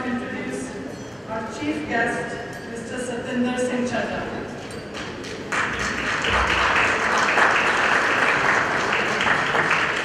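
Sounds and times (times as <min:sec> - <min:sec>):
audience applauding: 0:05.5 - 0:10.0.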